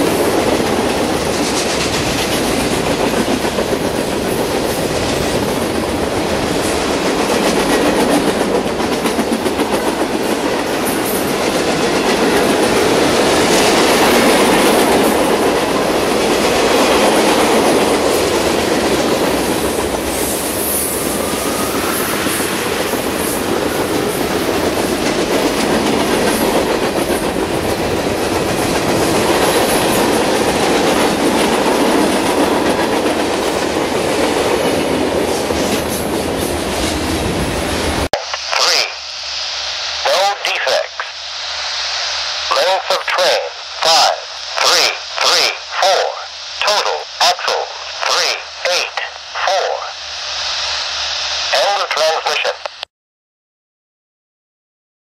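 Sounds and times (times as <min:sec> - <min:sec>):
train wheels rumbling on rails: 0:00.0 - 0:38.1.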